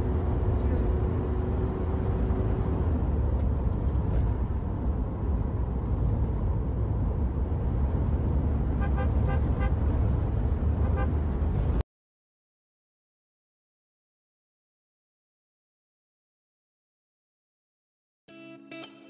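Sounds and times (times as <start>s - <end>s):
car engine and tyres rumble: 0.0s - 11.8s
car horn toots: 8.8s - 9.8s, 10.8s - 11.2s.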